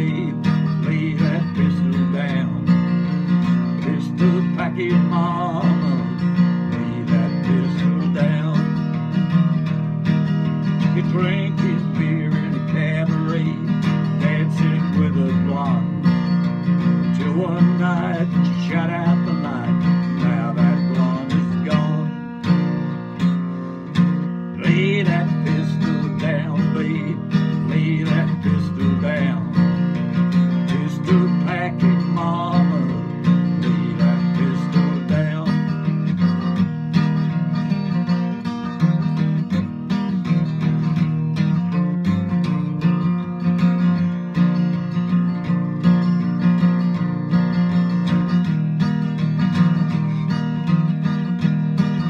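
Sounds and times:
acoustic guitar strumming: 0.0s - 52.0s.

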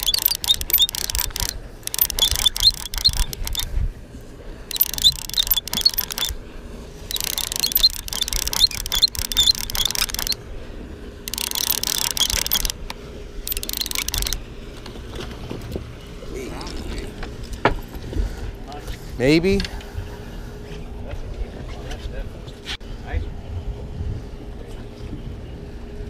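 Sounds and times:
fishing reel whirring and clicking: 0.0s - 3.7s, 4.7s - 6.4s, 7.0s - 10.4s, 11.2s - 14.4s.

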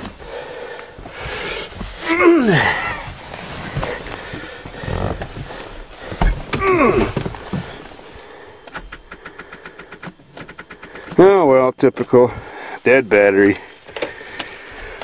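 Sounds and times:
starter solenoid clicking rapidly: 8.7s - 11.3s.

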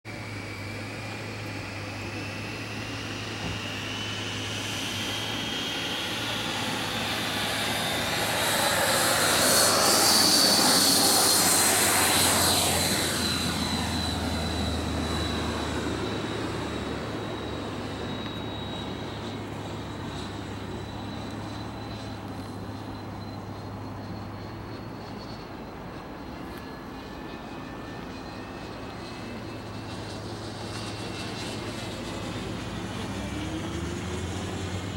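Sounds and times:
model jet engine whine: 0.0s - 34.9s.

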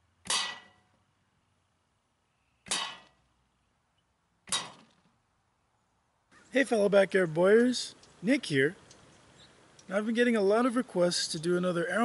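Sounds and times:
arrows striking metal target: 0.2s - 1.0s, 2.6s - 3.2s, 4.4s - 5.1s.

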